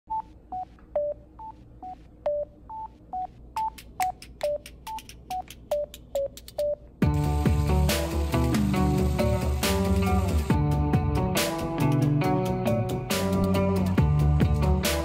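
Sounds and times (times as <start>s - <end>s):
clicky single notes music: 3.6s - 7.8s.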